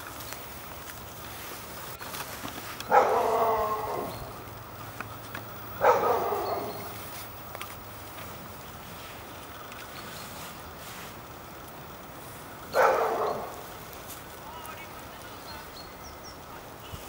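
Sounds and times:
dog barking: 2.8 - 4.4, 5.8 - 7.0, 12.7 - 13.7.

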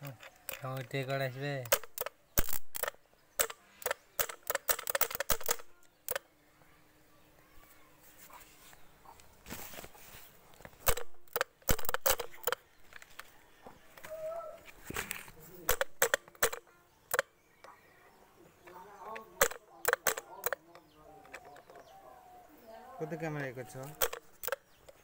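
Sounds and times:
electrical clicks and snaps: 0.0 - 6.3, 10.7 - 13.3, 14.9 - 17.8, 18.6 - 21.9, 23.4 - 25.0.

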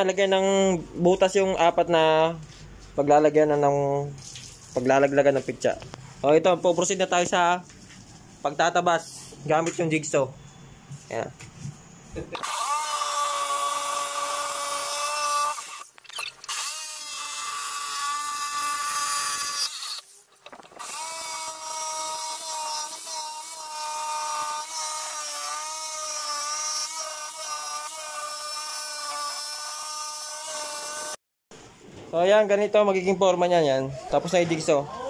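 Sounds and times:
jigsaw motor whining: 12.4 - 20.1, 20.7 - 31.2.

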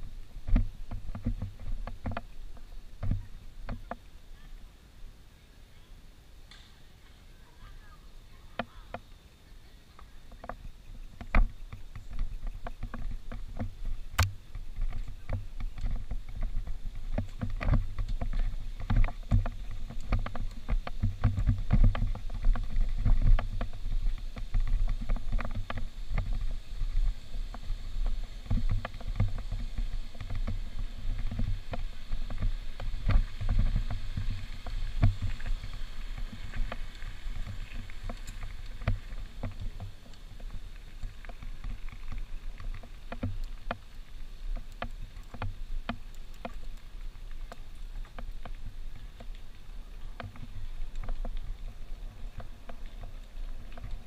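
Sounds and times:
water splashing and sloshing: 10.2 - 54.0.

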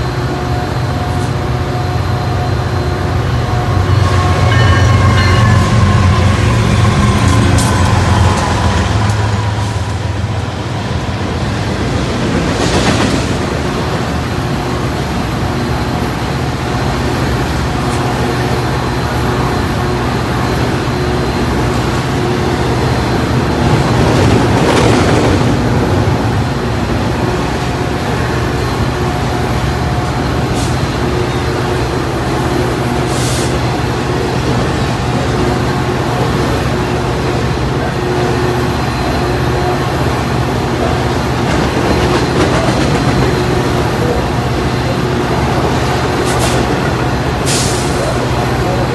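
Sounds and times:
diesel locomotive idling hum: 0.0 - 12.5, 25.5 - 48.9
train wheels rumbling on rail: 0.0 - 48.9.

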